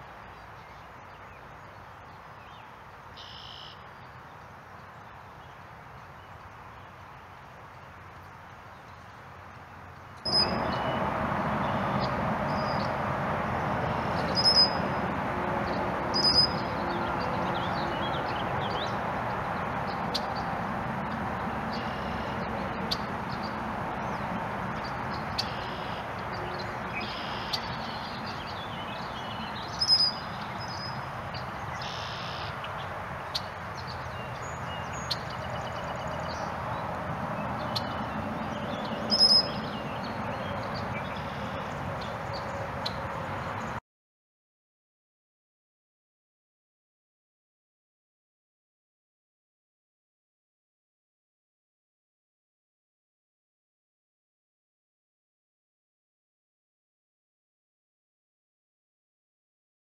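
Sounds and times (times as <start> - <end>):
faint bird chirps: 3.2 - 3.9, 10.3 - 11.0, 14.2 - 14.8, 16.2 - 16.7, 25.4 - 28.6, 31.7 - 32.6, 38.8 - 40.0.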